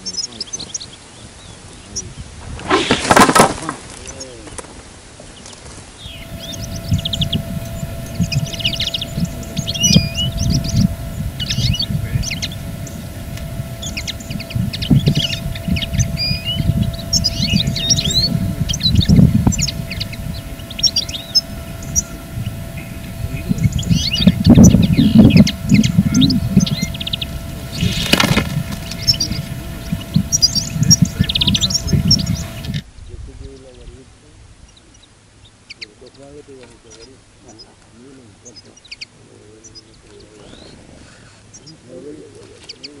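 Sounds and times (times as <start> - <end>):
songbirds chirping and twittering: 0.0 - 2.6, 3.8 - 43.0
faint steady hum: 3.2 - 43.0
low rumbling noise: 6.0 - 34.3.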